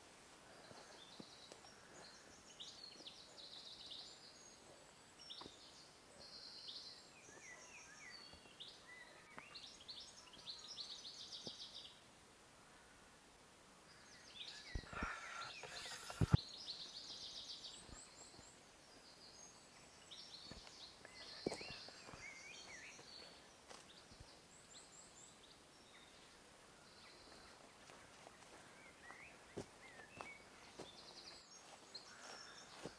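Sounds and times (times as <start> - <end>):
outdoor background noise: 0.0 - 32.9
birds chirping: 13.8 - 32.9.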